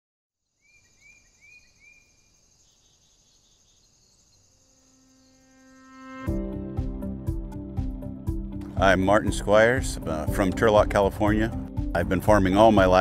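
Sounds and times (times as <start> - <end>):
insects chirping: 0.4 - 6.3
sustained musical note: 5.4 - 13.0.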